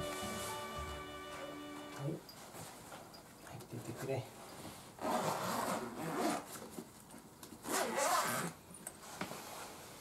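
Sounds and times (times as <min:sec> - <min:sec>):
zipper being pulled: 0:05.0 - 0:06.6, 0:07.6 - 0:09.8.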